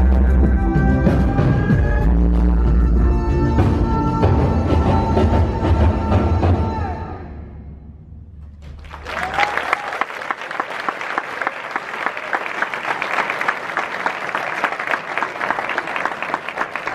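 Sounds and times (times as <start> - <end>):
music: 0.0 - 8.5
large audience applauding: 8.6 - 16.9.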